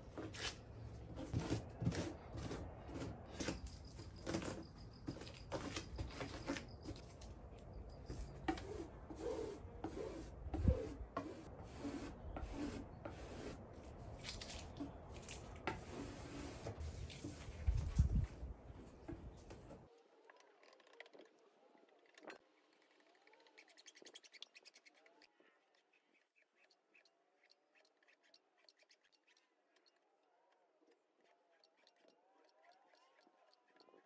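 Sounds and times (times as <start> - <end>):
spreader scraping wet fibreglass: 22.2 - 30.0, 31.2 - 34.0.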